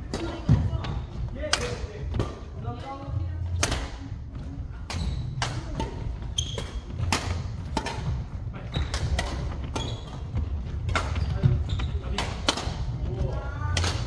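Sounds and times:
rackets striking shuttlecock: 0:03.6 - 0:04.0, 0:04.9 - 0:08.2, 0:12.2 - 0:12.8, 0:13.7 - 0:14.0
shoes squeaking on wooden floor: 0:06.0 - 0:07.1, 0:08.7 - 0:12.2.

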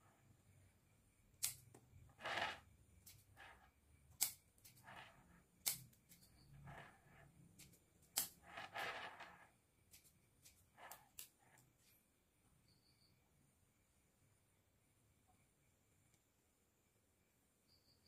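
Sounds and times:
scissors snipping twigs: 0:01.4 - 0:01.6, 0:04.2 - 0:04.8, 0:05.6 - 0:06.2.

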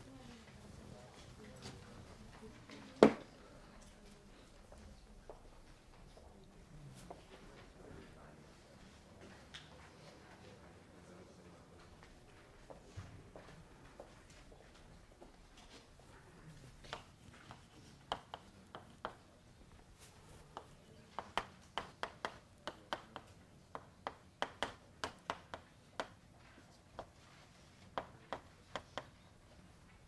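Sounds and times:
chalk tapping on blackboard: 0:16.8 - 0:19.2, 0:20.0 - 0:29.2.

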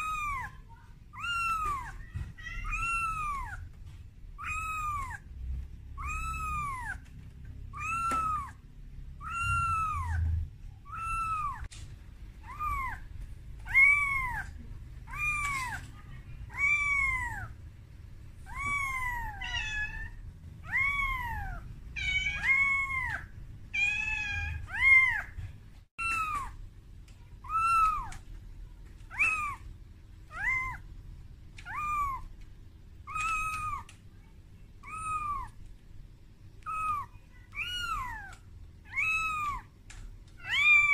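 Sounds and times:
kitten meowing: 0:00.0 - 0:03.8, 0:04.4 - 0:05.3, 0:05.9 - 0:07.1, 0:07.7 - 0:11.7, 0:12.4 - 0:17.6, 0:18.4 - 0:25.4, 0:26.0 - 0:26.6, 0:27.4 - 0:28.2, 0:29.1 - 0:29.6, 0:30.3 - 0:30.9, 0:31.6 - 0:32.3, 0:33.0 - 0:34.0, 0:34.8 - 0:35.6, 0:36.6 - 0:39.7, 0:40.4 - 0:40.9.

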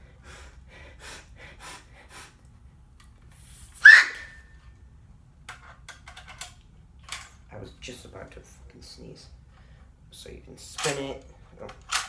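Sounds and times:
sharp gasping breath: 0:00.0 - 0:02.4
toy cap gun clicks and rattles: 0:05.9 - 0:07.4, 0:10.8 - 0:12.0.

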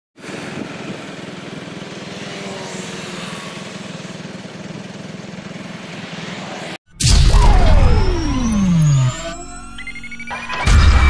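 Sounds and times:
small engine running: 0:00.2 - 0:06.8.

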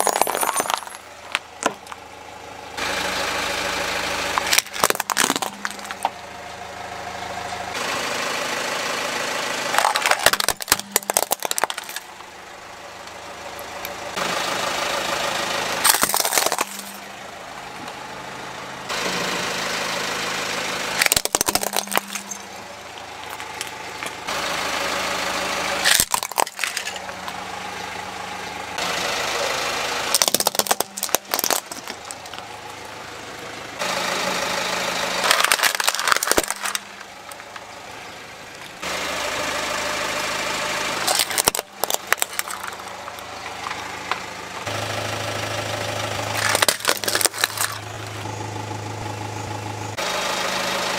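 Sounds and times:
car engine idling: 0:00.0 - 0:50.9
plastic toys cracking under tyre: 0:04.4 - 0:06.2, 0:09.8 - 0:12.2, 0:15.8 - 0:17.0, 0:21.0 - 0:22.4, 0:25.8 - 0:27.4, 0:30.1 - 0:32.5, 0:35.2 - 0:37.6, 0:41.1 - 0:44.2, 0:46.3 - 0:47.9.

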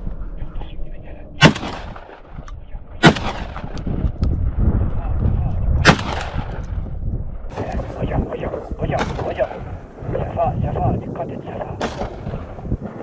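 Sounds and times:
shotgun shots with echo: 0:01.4 - 0:02.3, 0:03.0 - 0:03.7, 0:05.8 - 0:06.6, 0:08.9 - 0:09.7, 0:11.8 - 0:12.5.

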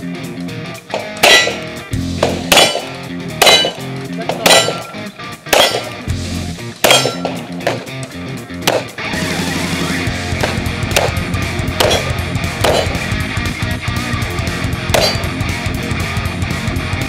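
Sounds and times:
rock music with guitar: 0:00.0 - 0:17.0.

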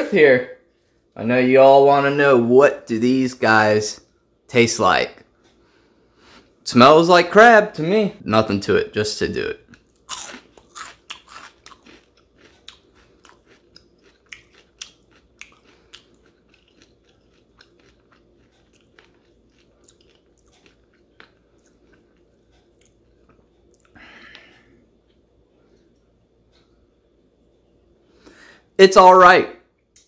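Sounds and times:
person chewing crunchy food: 0:09.7 - 0:25.9.

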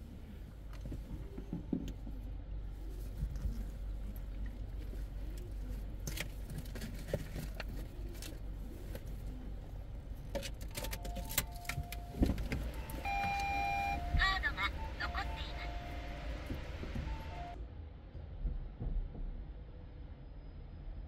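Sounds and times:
two-tone electronic beep: 0:12.8 - 0:16.3, 0:17.0 - 0:17.6.

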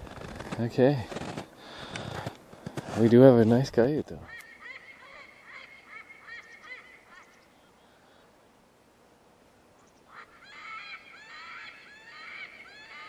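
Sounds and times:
faint high animal calls: 0:04.2 - 0:08.2, 0:09.8 - 0:13.0.

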